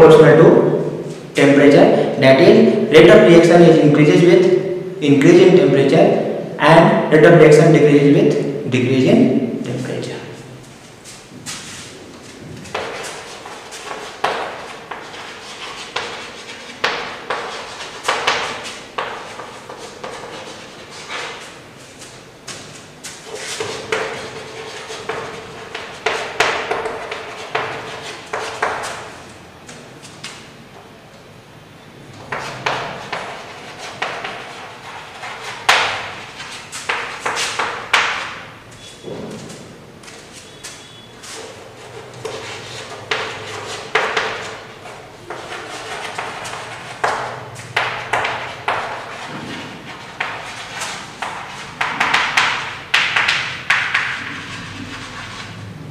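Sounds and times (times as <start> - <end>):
chalk tapping and scratching: 11.0 - 30.4, 32.2 - 55.7.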